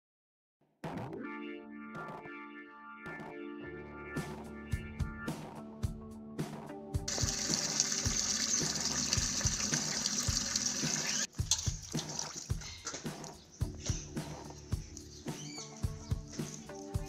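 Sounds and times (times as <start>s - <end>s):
music with steady beat: 4.1s - 17.0s
water pouring into metal bucket: 7.1s - 12.7s.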